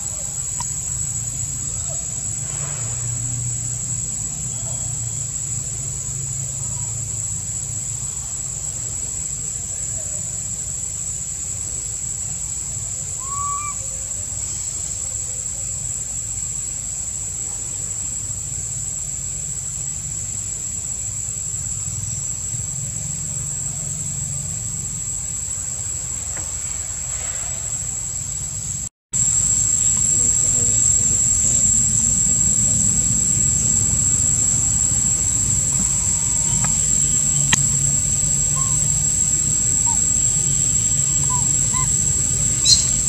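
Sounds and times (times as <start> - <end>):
high-pitched insect drone: 27.8 - 43.0
low rumble: 29.3 - 43.0
rising then falling chirp: 29.6 - 43.0.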